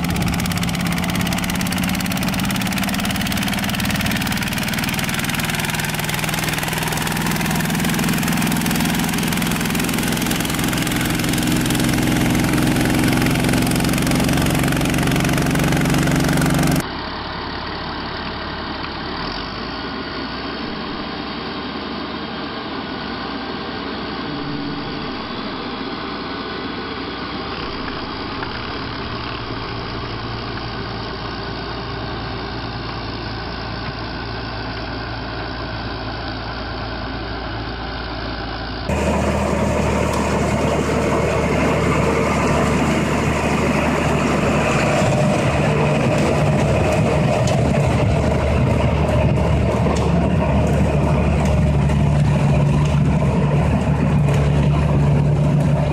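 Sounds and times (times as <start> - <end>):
small tractor engine running: 0.0 - 55.9
tracked tractor engine: 0.0 - 55.9.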